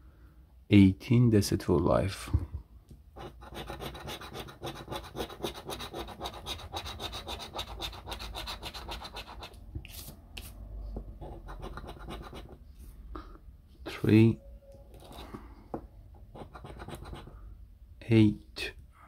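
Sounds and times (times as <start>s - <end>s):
coin scratching lottery ticket: 3.2s - 9.6s, 11.2s - 12.6s, 16.3s - 17.3s.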